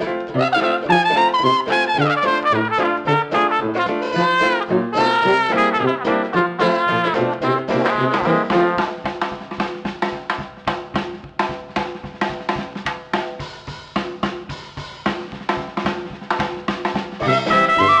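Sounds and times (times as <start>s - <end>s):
brass instruments playing: 0.0s - 9.1s, 17.2s - 18.0s
steady drum beat: 0.0s - 18.0s.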